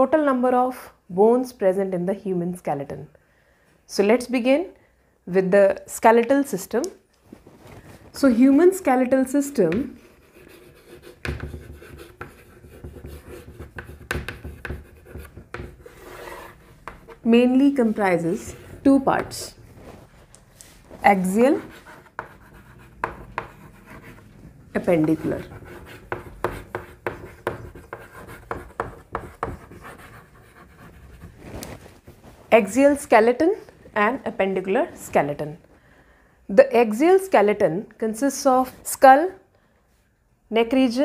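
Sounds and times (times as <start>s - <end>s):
handwriting strokes and taps: 9.7s - 17.2s, 21.4s - 24.2s, 24.8s - 31.7s
pen scratching on paper: 9.9s - 19.6s, 21.1s - 31.5s.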